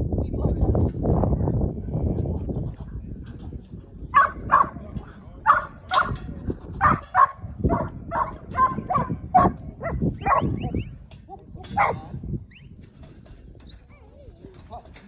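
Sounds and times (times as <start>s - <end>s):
dog barking: 4.2s - 4.8s, 5.5s - 6.2s, 6.8s - 10.6s, 11.3s - 12.1s.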